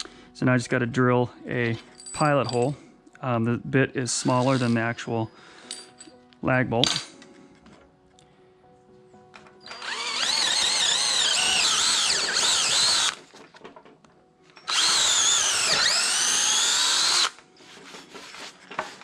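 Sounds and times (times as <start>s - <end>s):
power drill boring into wood: 4.2s - 4.8s, 9.6s - 13.2s, 14.7s - 17.4s.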